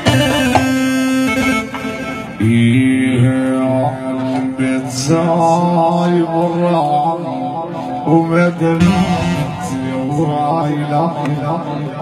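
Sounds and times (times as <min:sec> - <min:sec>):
instrumental music over sound system: 0:00.0 - 0:03.6, 0:07.7 - 0:11.9
low rumble: 0:08.8 - 0:10.7.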